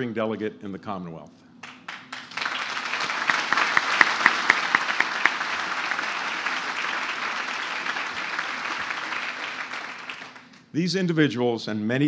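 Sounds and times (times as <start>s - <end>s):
audience applauding: 1.6s - 10.6s.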